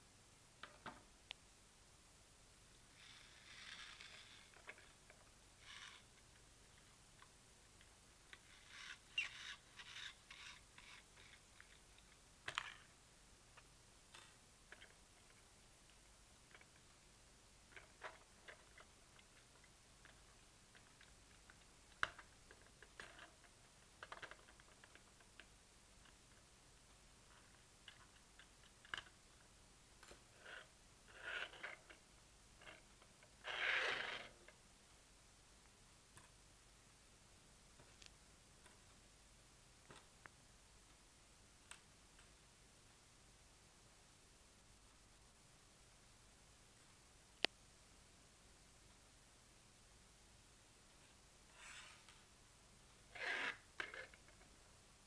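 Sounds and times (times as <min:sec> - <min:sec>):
small plastic clicks and scraping: 0:03.0 - 0:13.0, 0:13.6 - 0:17.0, 0:17.7 - 0:26.4, 0:27.2 - 0:34.6, 0:53.1 - 0:54.6
soft scrapes and rustles: 0:51.0 - 0:52.3
brushing sliding noise: 0:51.5 - 0:52.2.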